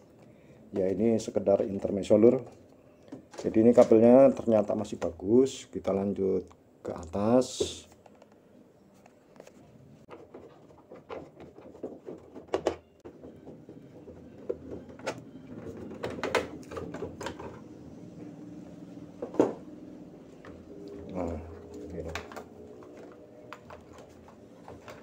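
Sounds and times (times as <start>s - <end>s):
plastic parts clicking and knocking: 10.1s - 17.6s.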